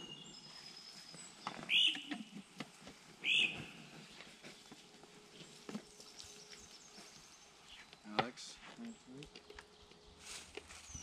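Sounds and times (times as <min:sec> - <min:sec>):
bird call: 0:00.0 - 0:02.4, 0:03.2 - 0:03.9.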